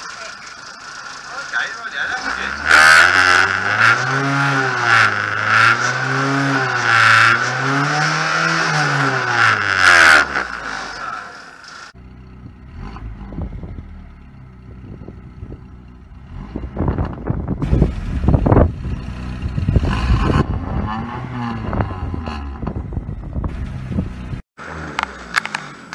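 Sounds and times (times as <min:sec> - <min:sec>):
rally car engine revving: 0:01.5 - 0:25.9
low engine rumble with knocks: 0:11.9 - 0:25.9.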